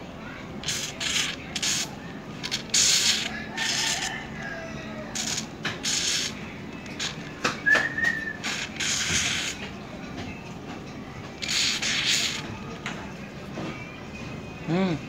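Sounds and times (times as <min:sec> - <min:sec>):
aerosol foam hissing bursts: 0:00.6 - 0:04.0, 0:05.1 - 0:06.4, 0:07.0 - 0:07.2, 0:08.4 - 0:09.6, 0:11.4 - 0:12.4
high squeak from nozzle: 0:05.1 - 0:07.2, 0:08.2 - 0:09.6, 0:11.4 - 0:12.5.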